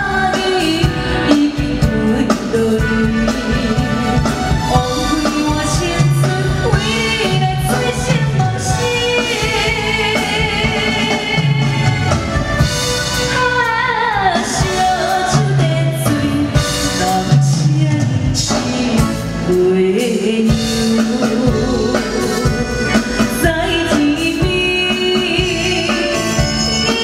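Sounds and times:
woman singing a pop ballad: 0.0s - 12.3s, 13.2s - 27.0s
drum kit: 0.0s - 27.0s
electronic keyboard: 18.2s - 27.0s.

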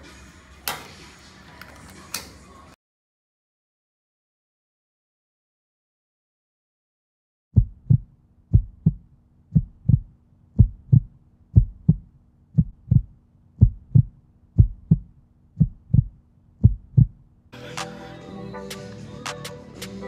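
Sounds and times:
heartbeat: 7.6s - 17.2s.

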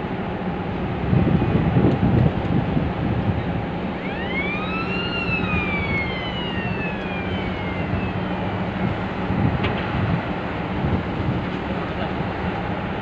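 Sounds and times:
siren wail: 3.9s - 9.2s.

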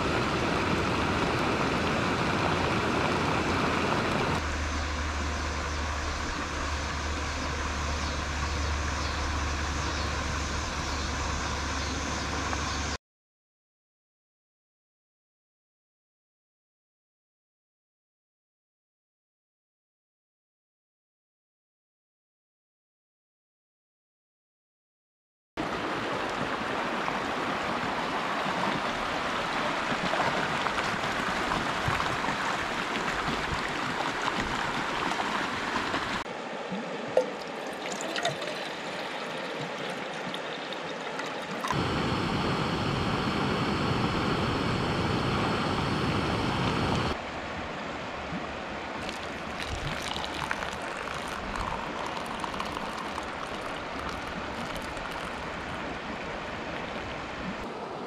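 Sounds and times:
river water over rocks: 0.0s - 8.4s, 25.6s - 58.0s
water poured into a mug: 37.2s - 41.8s, 49.0s - 55.6s
water poured into a pot: 37.2s - 41.8s, 49.0s - 55.5s.

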